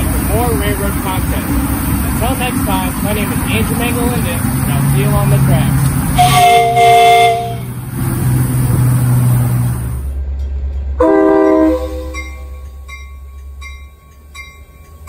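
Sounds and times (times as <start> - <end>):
steam locomotive hissing: 0.0 - 10.4
train horn blast: 6.1 - 7.8, 11.0 - 12.6.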